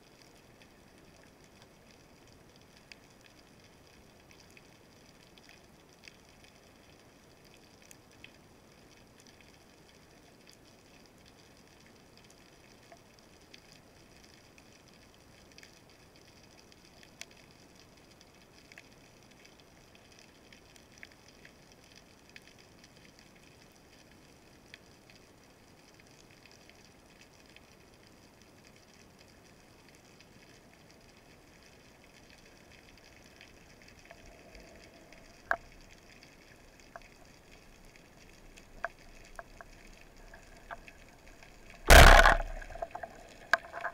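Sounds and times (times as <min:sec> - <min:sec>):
sharp clicks and crackles: 0:30.0 - 0:43.9.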